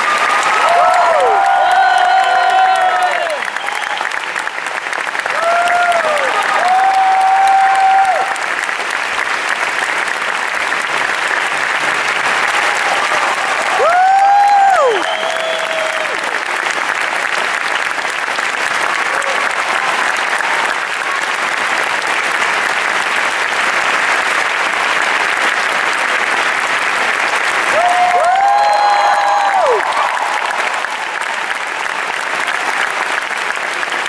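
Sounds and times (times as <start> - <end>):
whooping cheers: 0.0 - 4.6, 5.2 - 8.5, 12.4 - 16.5, 18.8 - 21.4, 27.6 - 33.0
audience applauding: 0.0 - 34.0.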